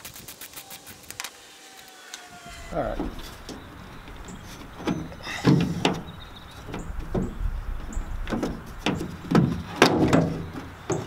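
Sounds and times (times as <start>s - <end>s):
plastic housing knocking and scraping: 3.0s - 11.0s.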